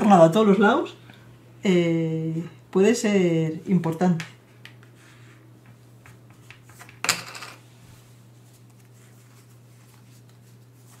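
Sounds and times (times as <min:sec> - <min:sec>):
game pieces clattering: 0:07.0 - 0:07.6.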